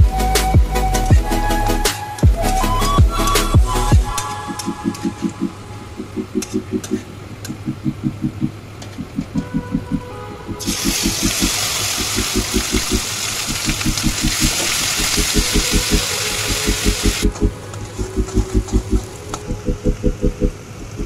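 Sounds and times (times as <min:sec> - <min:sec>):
background music with steady beat: 0:00.0 - 0:21.0
oil sizzling in a wok: 0:10.6 - 0:17.2.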